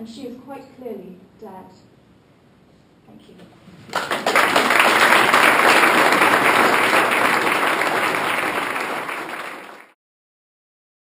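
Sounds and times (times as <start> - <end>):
audience applauding: 3.9 - 10.0.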